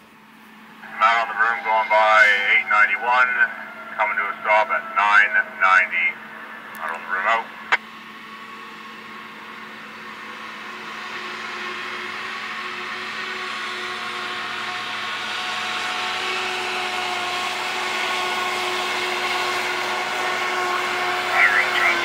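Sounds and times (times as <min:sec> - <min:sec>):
diesel locomotives rumbling: 0:00.0 - 0:22.0.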